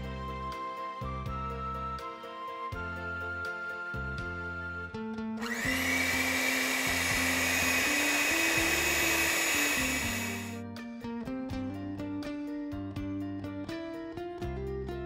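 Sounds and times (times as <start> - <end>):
gentle background music: 0.0 - 15.0
blender motor whirring: 5.4 - 10.6.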